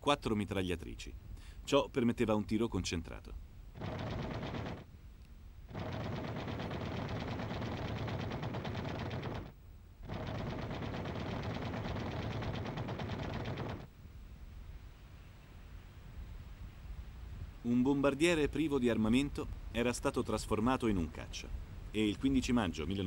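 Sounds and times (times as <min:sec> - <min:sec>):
cannon and machine guns firing: 0:03.8 - 0:04.9, 0:05.7 - 0:13.9.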